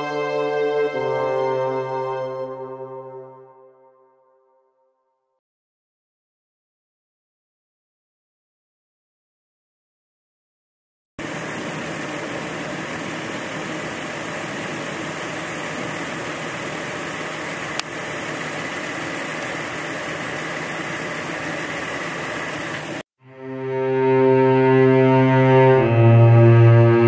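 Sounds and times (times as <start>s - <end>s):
engine idling: 11.2s - 23.0s.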